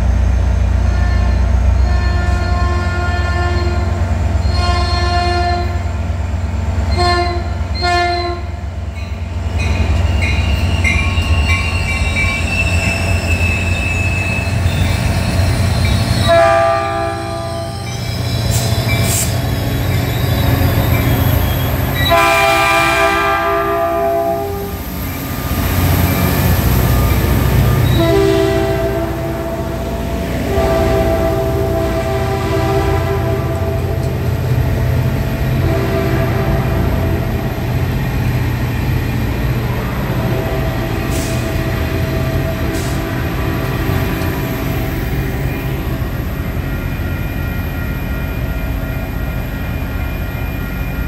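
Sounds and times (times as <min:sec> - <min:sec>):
diesel locomotive engine rumble: 0:00.0 - 0:51.0
train horn blasts: 0:00.9 - 0:05.8, 0:06.9 - 0:08.6, 0:16.2 - 0:18.0, 0:22.0 - 0:24.8, 0:27.4 - 0:37.6, 0:39.7 - 0:44.2.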